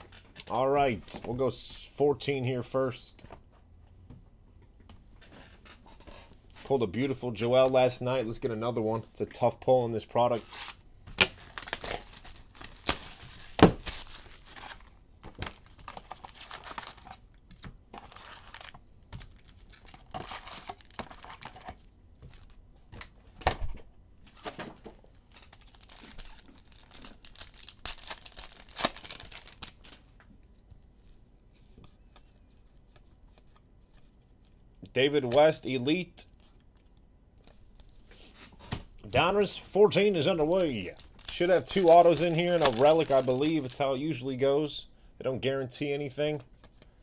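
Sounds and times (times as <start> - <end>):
plastic and foil crinkling: 10.5 - 17.3, 18.0 - 22.6, 25.1 - 30.2, 40.1 - 44.2.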